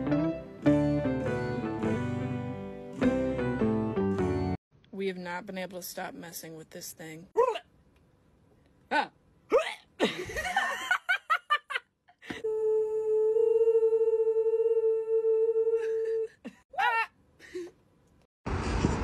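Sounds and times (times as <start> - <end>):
person humming a note: 12.4 - 16.3.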